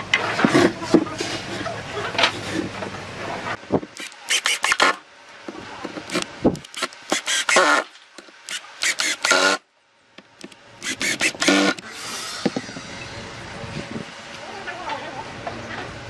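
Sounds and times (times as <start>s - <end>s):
impact driver driving screws: 4.0s - 5.0s, 6.0s - 9.6s, 10.4s - 12.6s.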